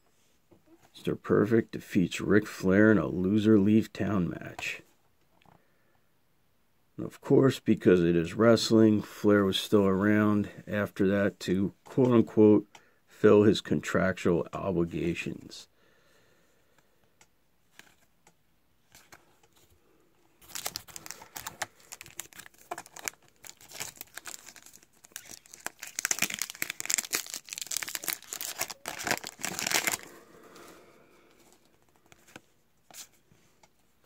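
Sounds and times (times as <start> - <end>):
wrapper tearing and crinkling: 20.4 - 30.1.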